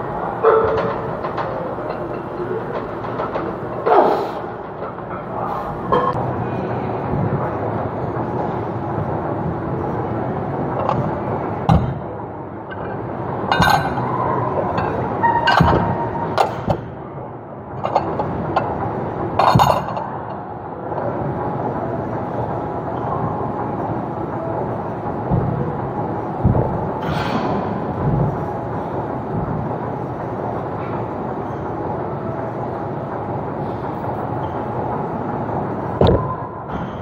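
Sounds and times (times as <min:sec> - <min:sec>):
iron weights clanking: 0:12.7 - 0:16.8.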